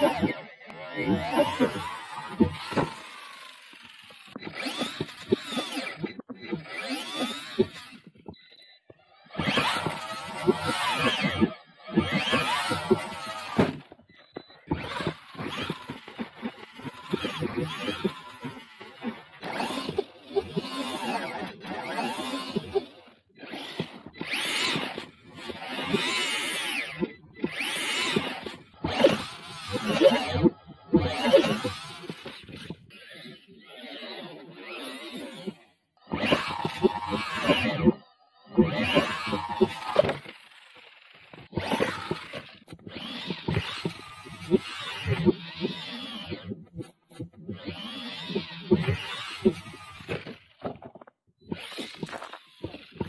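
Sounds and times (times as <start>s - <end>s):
electric motor whining: 0.0s - 53.0s.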